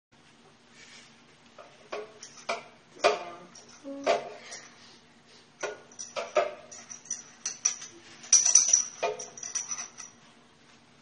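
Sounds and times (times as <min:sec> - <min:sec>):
kitchenware clinking: 0:01.6 - 0:04.8, 0:05.6 - 0:10.2
metallic ringing: 0:05.6 - 0:10.2.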